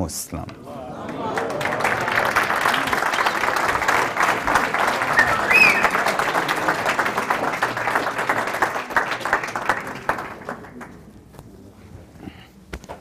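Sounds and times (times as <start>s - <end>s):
audience applauding: 0.7s - 11.0s.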